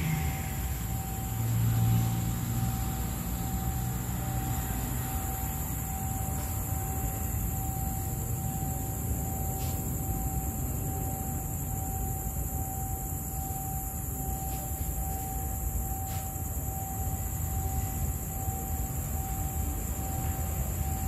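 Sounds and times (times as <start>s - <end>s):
distant locomotive rumble: 0.0s - 21.0s
steady high-pitched tone: 0.0s - 21.0s.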